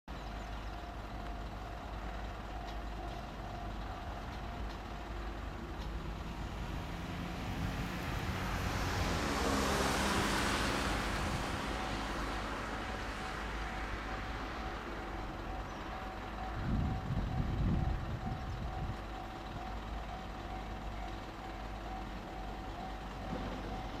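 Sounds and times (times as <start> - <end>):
traffic rumble: 0.1 - 24.0
van passing close by: 5.5 - 15.7.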